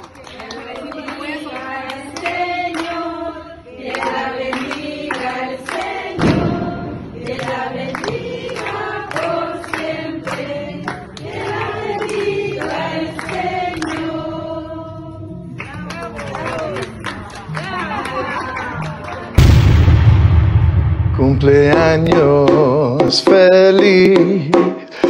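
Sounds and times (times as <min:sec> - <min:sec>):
group singing in chorus: 0:00.0 - 0:15.4
sudden low thump: 0:19.4 - 0:22.3.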